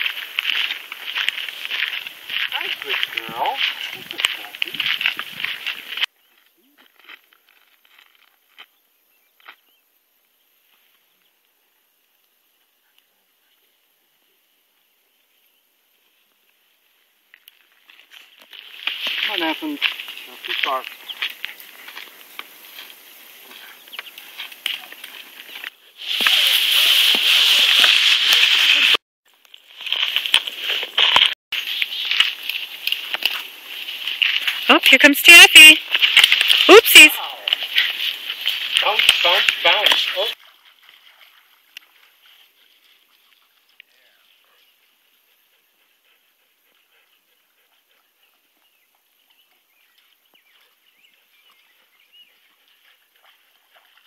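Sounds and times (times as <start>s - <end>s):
crackling rustle: 0.0s - 9.6s, 15.9s - 45.2s.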